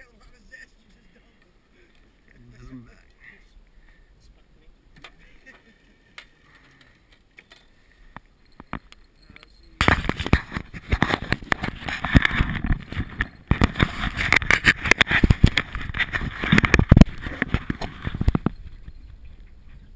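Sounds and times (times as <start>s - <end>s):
camera handling rubbing and knocking: 9.8s - 19.6s.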